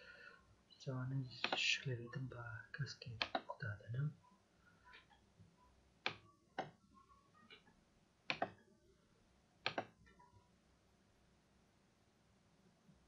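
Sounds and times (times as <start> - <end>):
mouse button clicking: 9.6 - 9.9.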